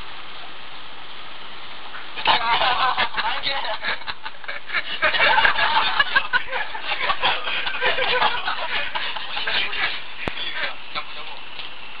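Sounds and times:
people chattering: 0:02.2 - 0:11.6
man laughing and snickering: 0:02.4 - 0:10.0.

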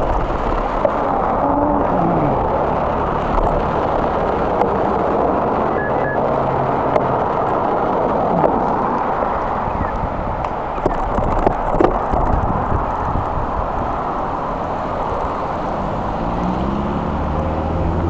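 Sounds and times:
wind and rolling noise: 0:00.0 - 0:18.0
cars driving past: 0:12.6 - 0:18.0.

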